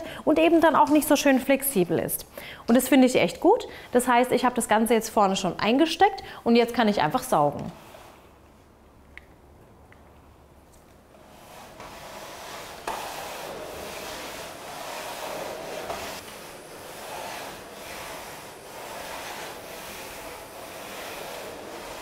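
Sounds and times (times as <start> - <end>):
vacuum nozzle rubbing on floor: 6.9 - 8.4, 11.1 - 22.0.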